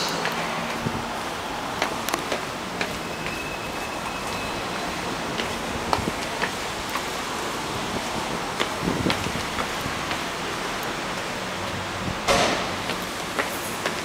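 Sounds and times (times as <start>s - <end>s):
footsteps on concrete stairs: 0.0s - 14.0s.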